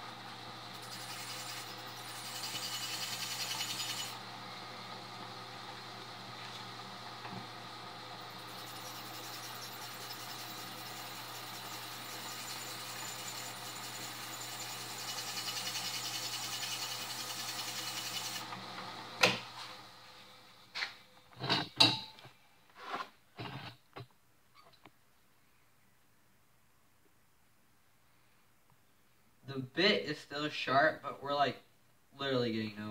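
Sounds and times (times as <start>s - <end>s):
drill press grinding: 0.6s - 4.2s, 8.2s - 18.6s.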